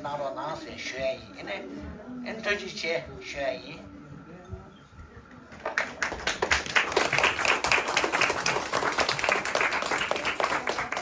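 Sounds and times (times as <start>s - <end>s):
audience applauding: 5.8s - 11.0s.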